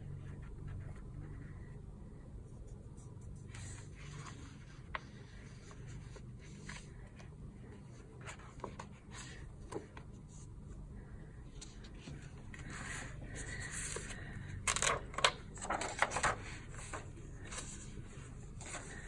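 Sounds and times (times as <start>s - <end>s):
paper scratching and rustling: 3.0s - 7.1s, 11.8s - 19.0s.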